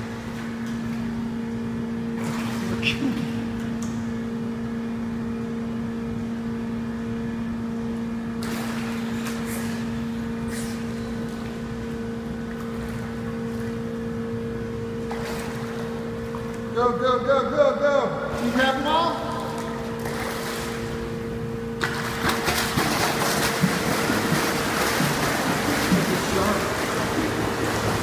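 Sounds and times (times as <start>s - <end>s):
steady low mechanical hum: 0.0s - 28.0s
child splashing in pool: 21.8s - 28.0s.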